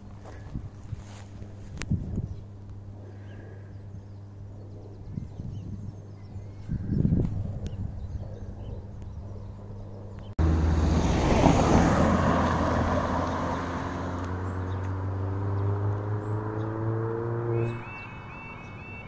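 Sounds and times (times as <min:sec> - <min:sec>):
van driving past: 0:10.4 - 0:18.1
engine accelerating: 0:10.4 - 0:18.2
tyre and road noise: 0:10.4 - 0:18.8.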